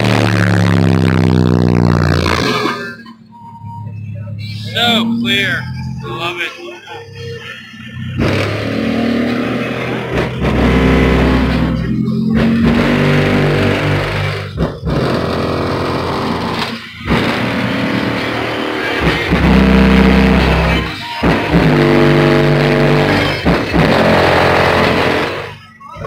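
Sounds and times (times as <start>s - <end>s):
bass-heavy music from car speakers: 0.0s - 26.0s.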